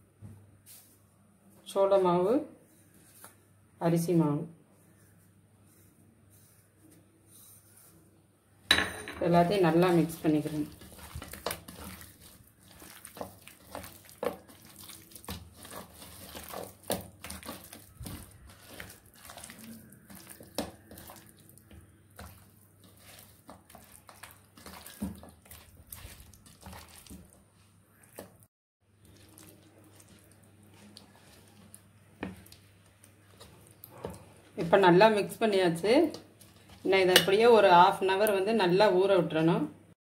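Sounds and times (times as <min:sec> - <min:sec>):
hand squelching wet marinade: 0:09.5 - 0:34.7, 0:35.5 - 0:38.4.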